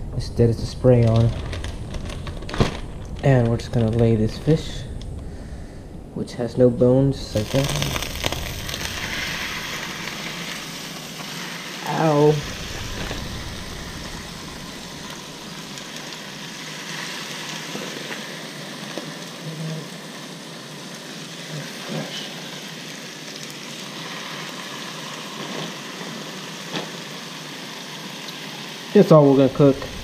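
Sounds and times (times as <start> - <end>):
fish sizzling in a frying pan: 7.3 - 30.0.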